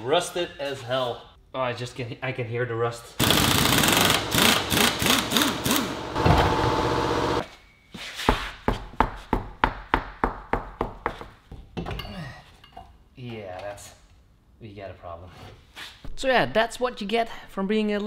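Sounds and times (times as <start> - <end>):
power tool rattling: 3.2 - 7.4.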